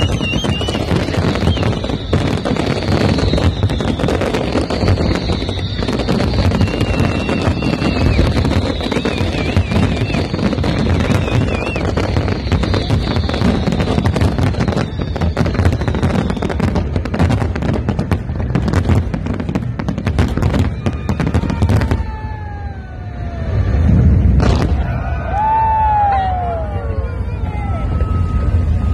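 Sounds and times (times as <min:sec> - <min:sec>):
falling whistle tones: 0:00.0 - 0:17.0
fireworks crackling and banging: 0:00.0 - 0:26.7
deep boom: 0:23.2 - 0:25.3.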